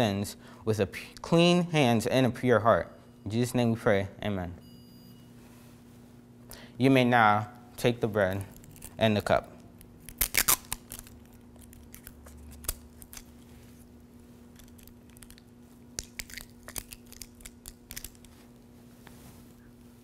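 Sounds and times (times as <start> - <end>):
plastic cup crinkling open: 14.5 - 18.6.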